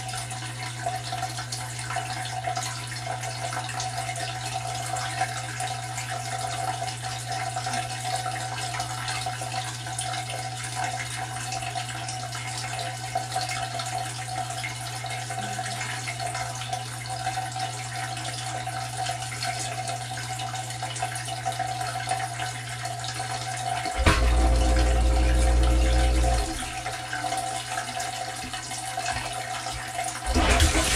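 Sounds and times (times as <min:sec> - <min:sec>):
dishwasher pump drone: 0:00.0 - 0:30.9
low valve hum: 0:23.9 - 0:27.5.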